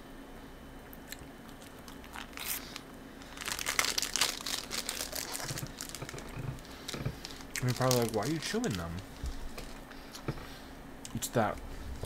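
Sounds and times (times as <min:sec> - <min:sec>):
plastic wrapper crinkling: 0:01.6 - 0:09.8.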